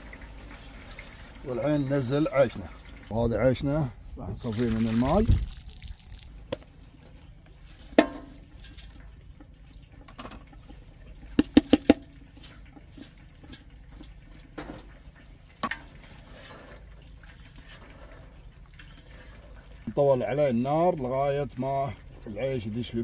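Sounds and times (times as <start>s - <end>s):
container knocking against pot: 7.9s - 8.9s, 11.3s - 12.2s
wet rice dropping into pot: 11.3s - 14.9s.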